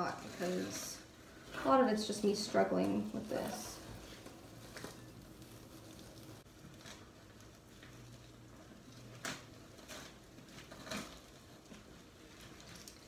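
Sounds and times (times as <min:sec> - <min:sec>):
plant leaves and soil rustling: 0:00.0 - 0:13.0.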